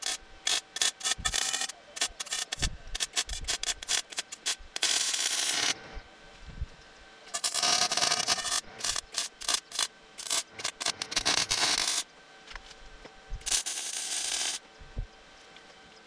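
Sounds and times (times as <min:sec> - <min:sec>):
welding arc crackling: 0:00.0 - 0:05.8, 0:07.3 - 0:12.1, 0:13.4 - 0:14.6.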